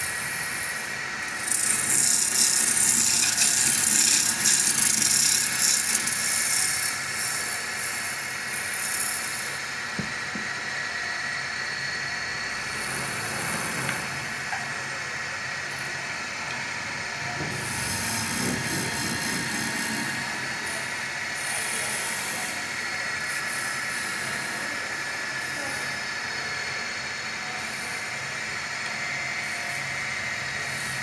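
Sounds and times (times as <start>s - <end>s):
wood lathe motor whine: 0.0s - 31.0s
tool scraping turning wood: 1.4s - 6.4s, 12.8s - 14.2s, 17.4s - 20.8s.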